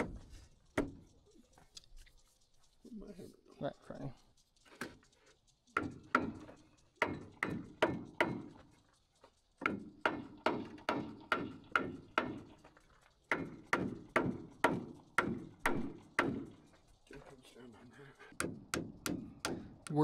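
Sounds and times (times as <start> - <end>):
hammer driving nails into wood: 5.8 - 8.6, 9.6 - 12.5, 13.3 - 16.6, 18.4 - 19.9.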